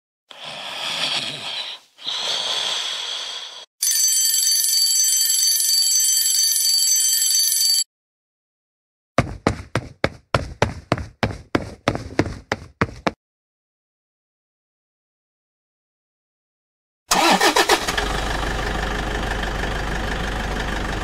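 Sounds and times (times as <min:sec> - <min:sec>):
cartoon snores: 0:00.3 - 0:03.7
alarm clock bell ringing: 0:03.8 - 0:07.9
quick tapping footsteps: 0:09.2 - 0:13.2.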